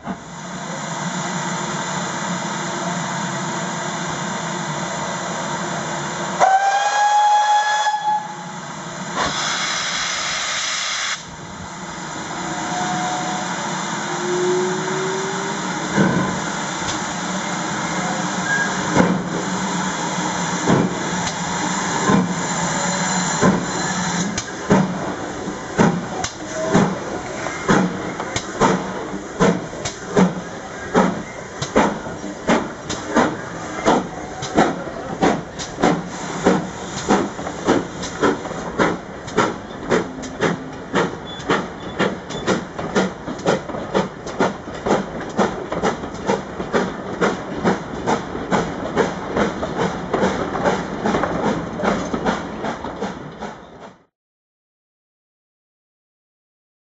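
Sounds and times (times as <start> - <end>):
steam locomotive hissing: 0.1 - 53.8
steam whistle: 6.4 - 8.6, 12.4 - 15.9
blast of steam from drain cocks: 9.2 - 11.3
heavy locomotive exhaust beats: 11.2 - 54.1.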